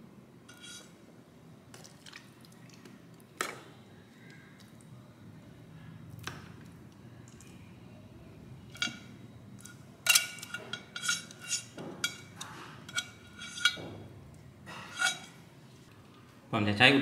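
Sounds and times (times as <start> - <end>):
metal tongs clinking: 8.7 - 13.8, 14.9 - 15.3.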